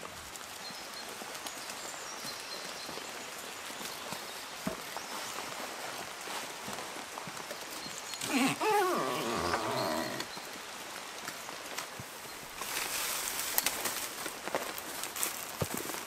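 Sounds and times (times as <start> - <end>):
light rain patter: 0.0 - 16.0
dog whining: 8.2 - 10.3.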